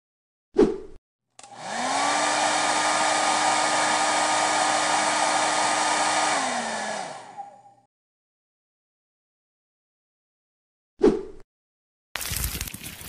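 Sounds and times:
hair dryer blowing: 1.4 - 7.9.

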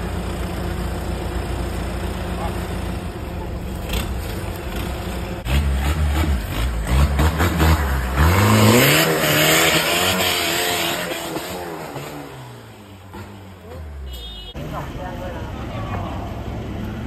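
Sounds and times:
buggy engine revving hard: 2.3 - 14.0.

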